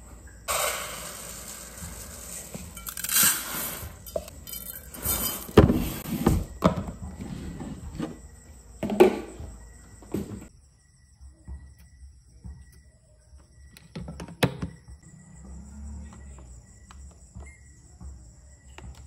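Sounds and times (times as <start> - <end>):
rice pouring into metal pot: 0.5 - 5.6.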